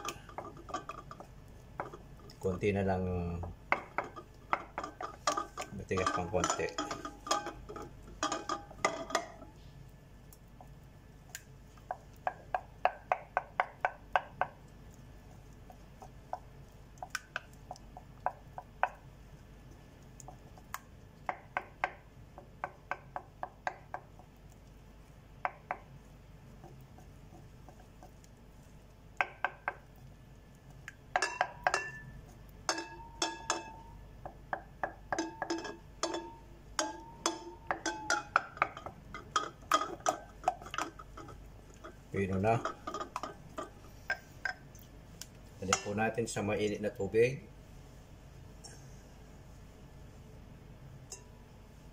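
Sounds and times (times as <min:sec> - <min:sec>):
spatula knocking against glass bowl: 0:20.2 - 0:24.3, 0:31.2 - 0:44.6.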